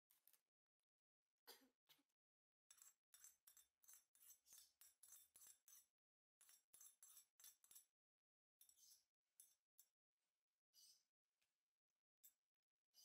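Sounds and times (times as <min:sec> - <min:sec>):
metal spoon scraping ceramic plate: 0:02.7 - 0:07.9, 0:08.6 - 0:09.6.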